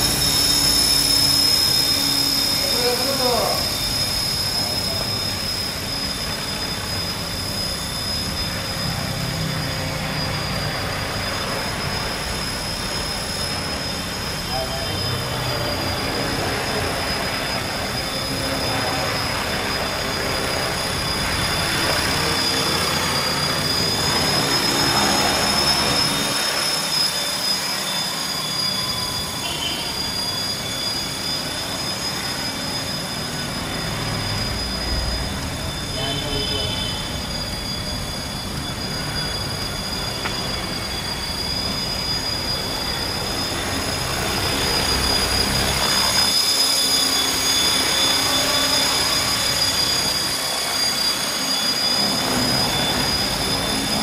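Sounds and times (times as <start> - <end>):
helicopter rotor noise: 0.0 - 54.0
rc helicopter motor whine: 0.0 - 54.0.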